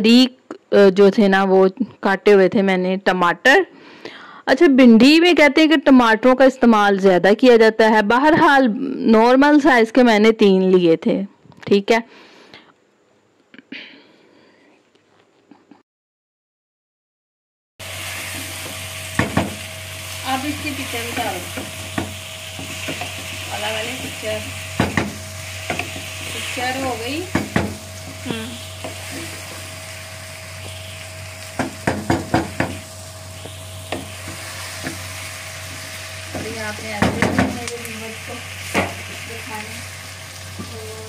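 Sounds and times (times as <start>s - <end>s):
vegetables sizzling in a wok: 17.8s - 41.0s
spatula knocking against pan: 24.8s - 26.1s, 31.6s - 32.8s.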